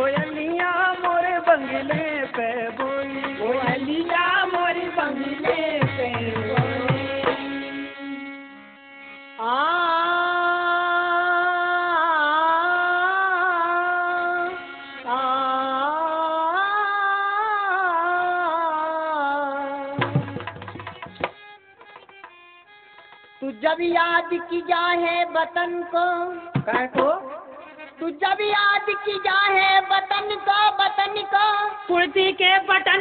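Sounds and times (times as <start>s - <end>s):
hand-drum beats: 0.0s - 7.6s, 20.0s - 23.4s, 26.5s - 27.3s.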